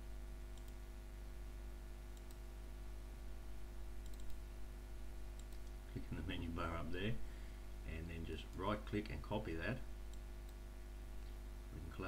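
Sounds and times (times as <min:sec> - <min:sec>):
low electrical hum: 0:00.0 - 0:12.0
computer mouse clicks: 0:00.5 - 0:00.8, 0:02.1 - 0:02.4, 0:04.0 - 0:04.4, 0:05.4 - 0:05.8.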